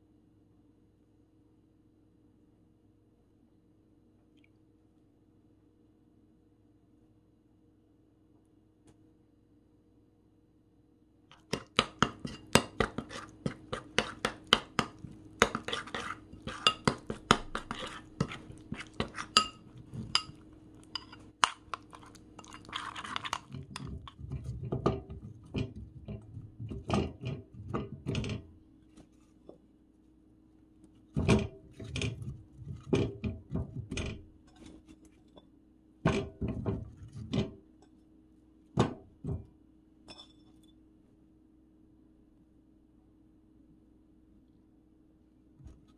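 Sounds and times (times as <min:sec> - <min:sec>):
faint steady hum: 0:00.0 - 0:45.9
spoon scraping ceramic bowl: 0:11.3 - 0:28.5, 0:31.2 - 0:35.5, 0:40.1 - 0:40.8
radish knocking in metal pot: 0:11.3 - 0:28.6, 0:31.1 - 0:34.8, 0:36.0 - 0:37.7, 0:38.8 - 0:39.5.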